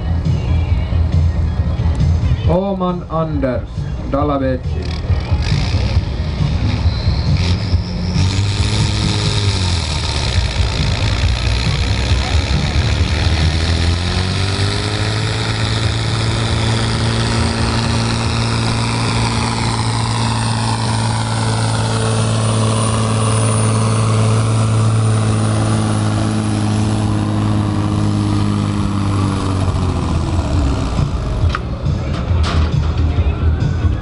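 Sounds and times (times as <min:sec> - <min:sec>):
tractor engine at high revs: 0:04.6 - 0:34.0.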